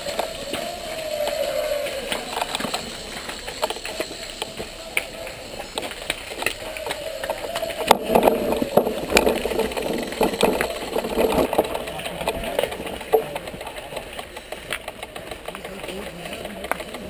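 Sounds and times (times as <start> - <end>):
bike rattling and clicking: 0.0 - 17.0.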